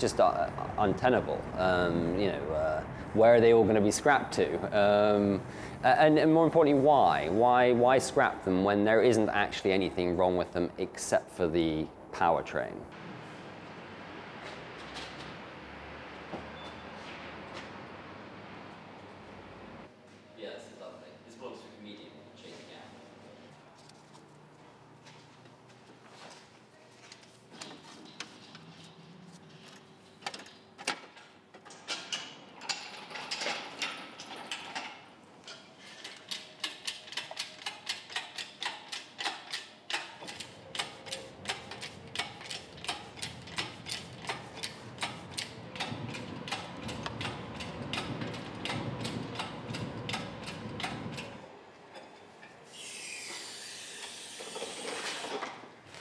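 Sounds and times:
ratchet clicking: 36.1s - 51.3s
steady hiss: 52.7s - 55.4s.

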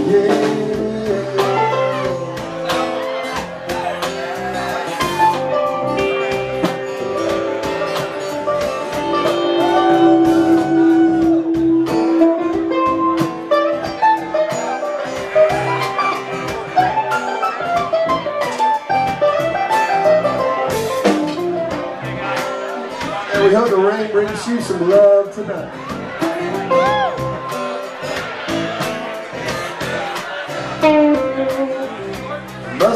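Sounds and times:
strummed acoustic guitar: 0.0s - 32.9s
upright bass: 0.0s - 32.9s
mandolin solo: 5.2s - 22.0s.

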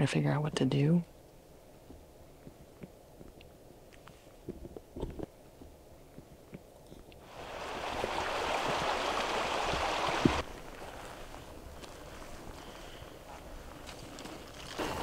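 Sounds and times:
steady rushing hiss: 5.3s - 15.0s
footsteps on dirt trail: 9.8s - 15.0s.

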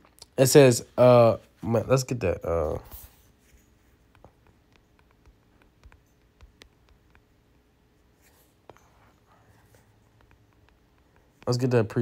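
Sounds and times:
fingertips tapping touchscreen: 2.9s - 11.7s.

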